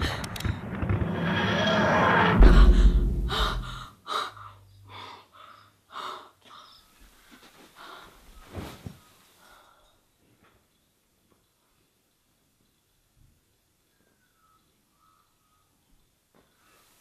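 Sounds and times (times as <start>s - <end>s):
whoosh with deep rumble: 0.0s - 3.9s.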